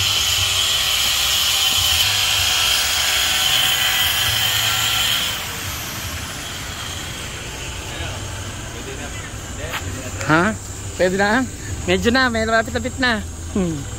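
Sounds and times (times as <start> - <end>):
construction site noise: 0.0 - 13.9
power tool whining: 0.0 - 13.9.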